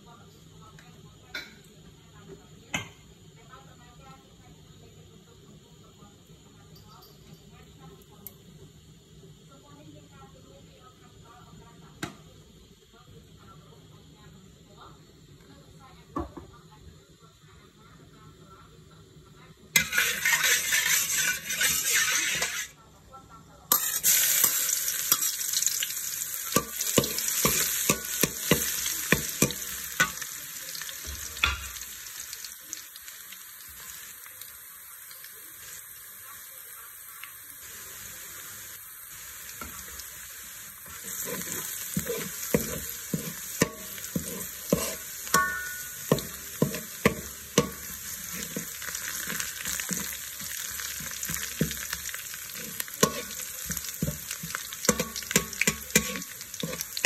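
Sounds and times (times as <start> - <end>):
garlic sizzling in hot oil: 17.3 - 22.8, 23.6 - 57.0
metal spatula scraping wok: 19.8 - 22.8, 23.7 - 30.8, 40.8 - 57.0.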